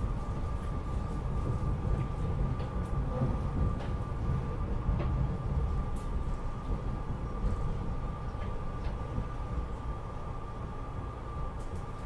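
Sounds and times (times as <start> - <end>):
train rumbling on track: 0.0 - 12.0.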